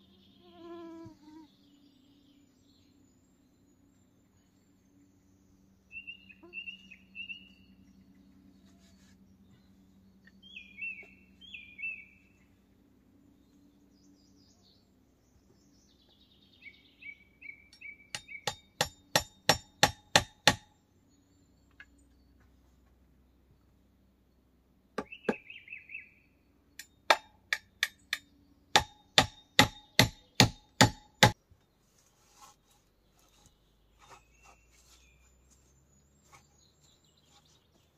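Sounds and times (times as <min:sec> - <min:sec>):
low steady hum: 0:00.0 - 0:25.1
small birds chirping: 0:00.0 - 0:37.9.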